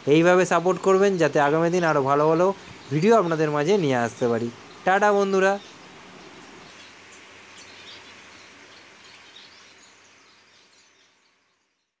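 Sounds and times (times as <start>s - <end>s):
background hiss: 0.0s - 12.0s.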